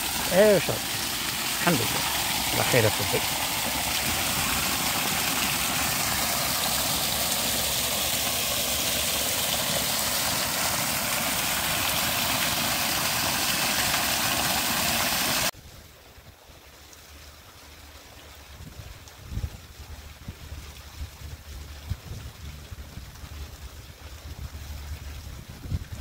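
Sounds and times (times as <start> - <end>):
water gushing over rocks: 0.0 - 15.5.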